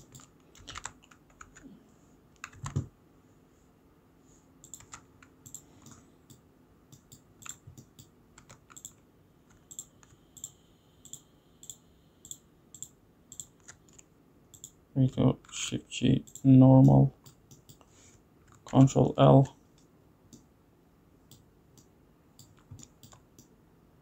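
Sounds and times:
keyboard and mouse clicks: 0.0s - 1.7s, 2.4s - 2.9s, 4.6s - 14.8s, 21.3s - 23.5s.

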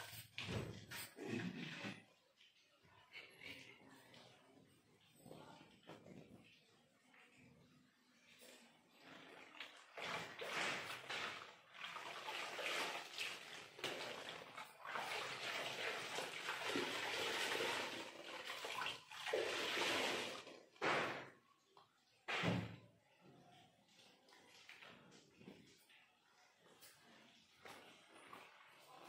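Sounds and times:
wet laundry splashing in water: 9.0s - 21.5s.

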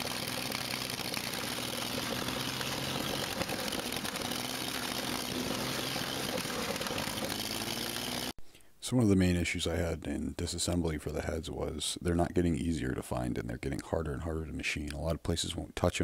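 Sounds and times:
engine running steadily: 0.0s - 8.3s.

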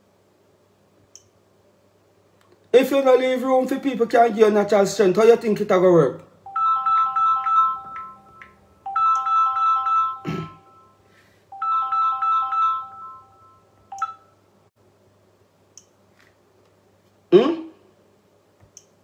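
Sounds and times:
mobile phone ringtone beeping melody: 6.5s - 14.3s.

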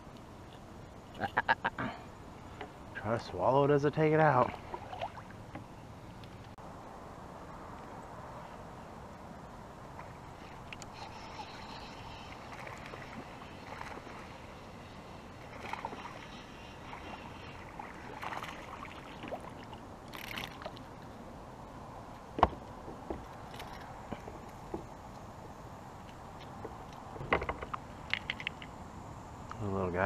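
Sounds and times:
hiss of water: 10.0s - 19.6s.

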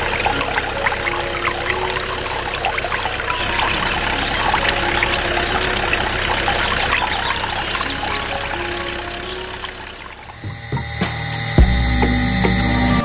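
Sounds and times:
juice pouring and splashing: 0.0s - 10.7s
low steady hum: 9.5s - 13.0s.

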